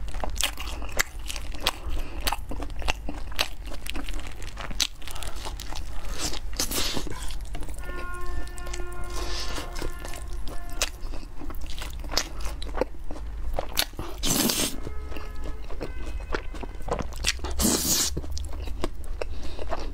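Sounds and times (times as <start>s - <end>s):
chewing noodles: 0.0s - 19.9s
loud noodle slurps: 14.1s - 14.8s, 17.6s - 18.2s.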